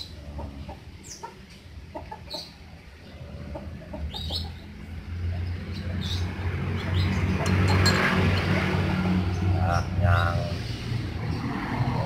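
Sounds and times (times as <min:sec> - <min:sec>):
bird chick chirping: 0:00.0 - 0:04.7.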